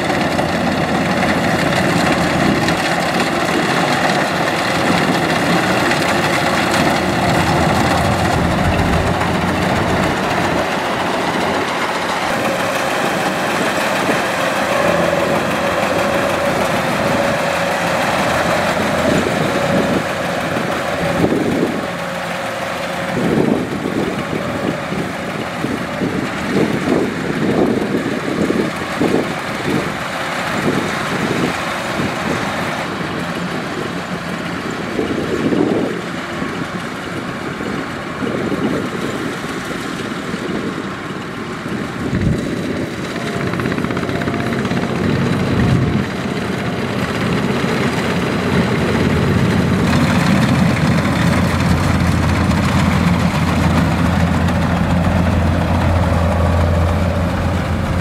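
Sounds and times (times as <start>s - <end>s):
combine harvester running: 0.0s - 58.0s
low buffeting: 4.3s - 27.6s, 42.1s - 58.0s.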